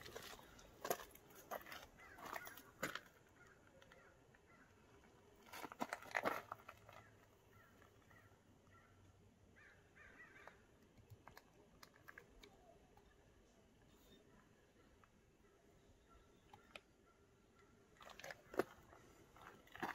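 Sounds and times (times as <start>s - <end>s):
faint bird chirps: 12.4s - 18.6s.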